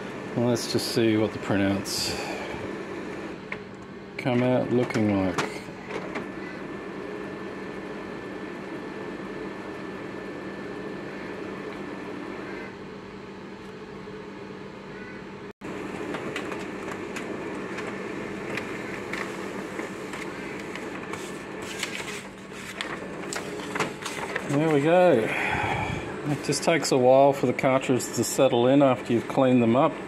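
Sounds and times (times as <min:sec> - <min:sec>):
printer humming with faint whine: 0:00.0 - 0:30.0
printer clicking: 0:15.8 - 0:24.9.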